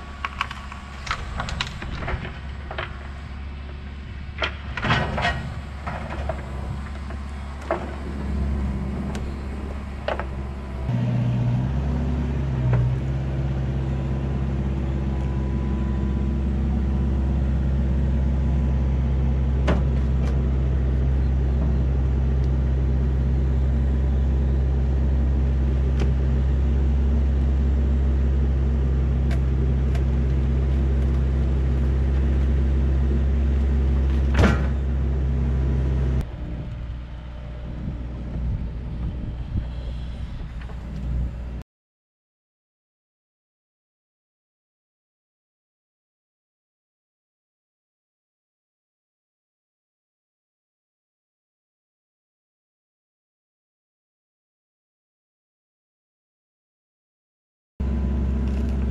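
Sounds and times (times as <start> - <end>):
excavator diesel engine running: 0.0 - 41.6, 57.8 - 58.9.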